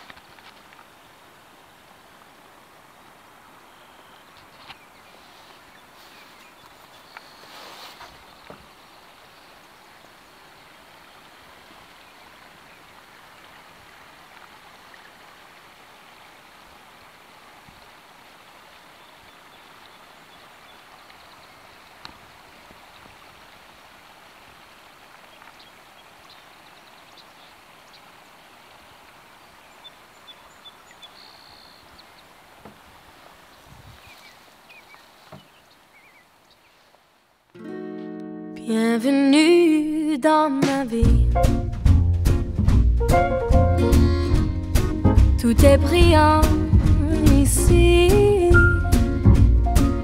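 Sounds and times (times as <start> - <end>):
river water hissing: 0.0 - 37.4
faint clicks: 6.6 - 7.3.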